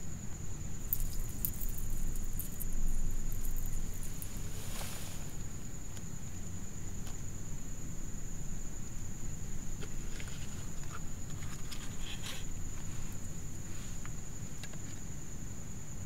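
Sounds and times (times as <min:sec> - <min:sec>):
faint rustles: 0:00.8 - 0:05.7, 0:09.8 - 0:14.3.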